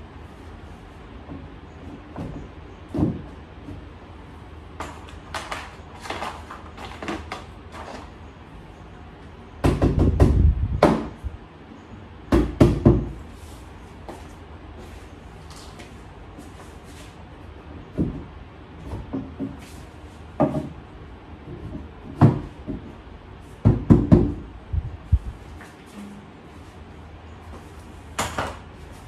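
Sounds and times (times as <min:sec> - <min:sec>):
panels knocking and thumping: 0:01.2 - 0:04.0, 0:09.6 - 0:11.2, 0:12.3 - 0:13.2, 0:17.8 - 0:23.0, 0:23.6 - 0:24.5.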